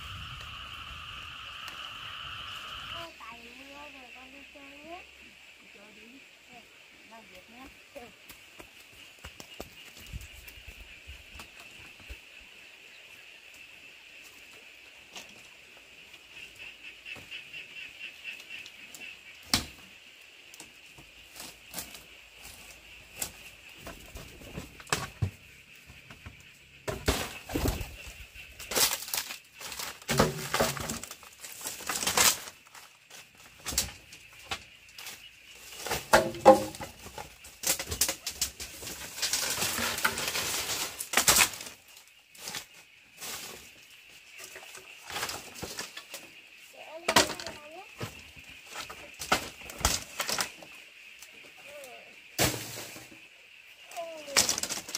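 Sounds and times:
bamboo knocks and clatters: 0:20.9 - 0:43.6, 0:44.4 - 0:46.3, 0:47.1 - 0:50.7, 0:52.4 - 0:53.2, 0:54.3 - 0:54.9
dry thatch crunching underfoot: 0:27.1 - 0:33.5.

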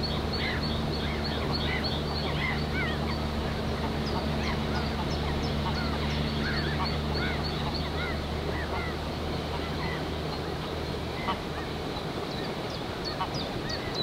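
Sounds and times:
waterfowl whistled calls: 0:00.0 - 0:10.4.

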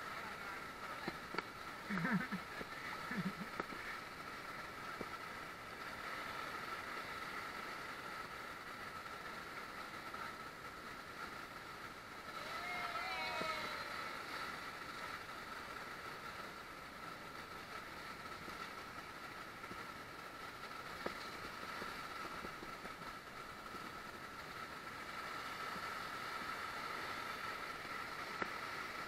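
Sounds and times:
rushing whitewater: 0:00.0 - 0:29.0.

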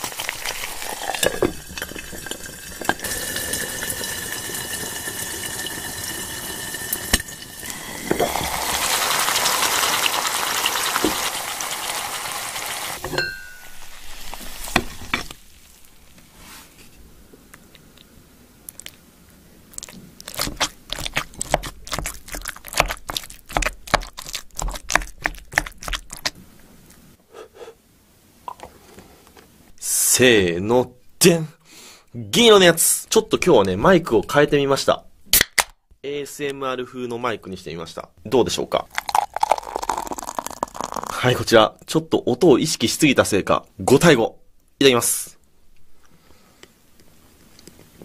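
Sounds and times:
egg sizzling in covered pot: 0:00.0 - 0:16.6, 0:38.9 - 0:41.2
sharp clink: 0:13.1 - 0:13.7.

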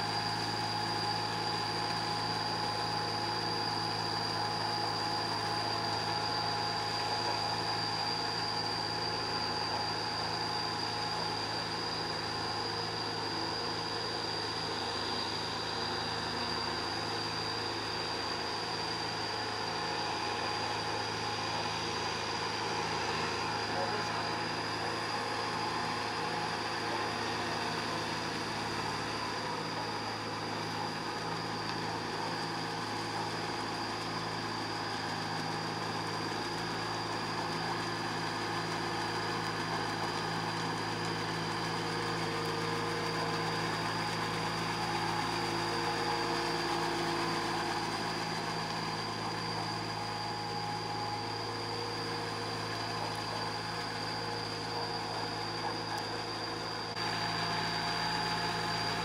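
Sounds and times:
high-pitched whine: 0:00.0 - 0:59.0
tractor diesel engine running: 0:18.2 - 0:59.0.

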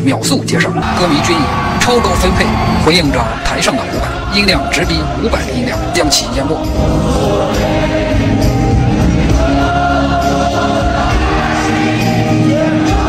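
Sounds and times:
crowd singing along: 0:00.8 - 0:13.0.

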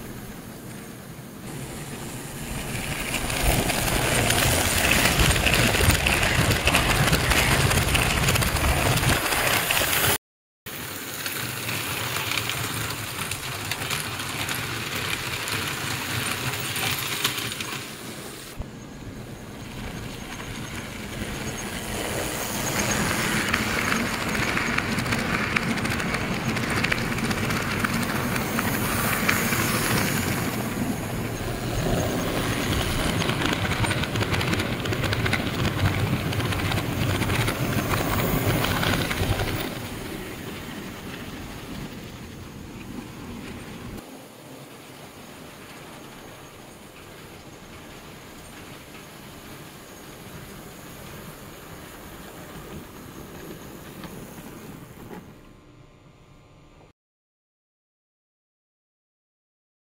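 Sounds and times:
toy trains rumbling on metal track: 0:01.5 - 0:18.4, 0:19.6 - 0:42.1.

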